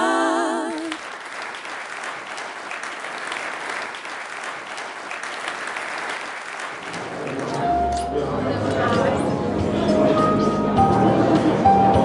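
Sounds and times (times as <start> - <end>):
women singing a cappella chord: 0.0 - 1.0
audience applauding: 0.6 - 8.8.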